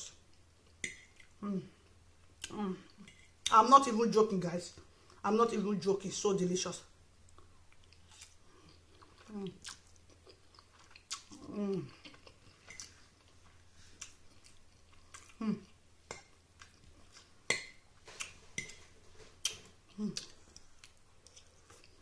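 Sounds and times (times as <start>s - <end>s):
person chewing: 0.1s - 3.6s, 7.2s - 22.0s
person humming mmm: 1.4s - 1.8s, 11.3s - 12.0s, 15.3s - 15.8s, 19.9s - 20.4s.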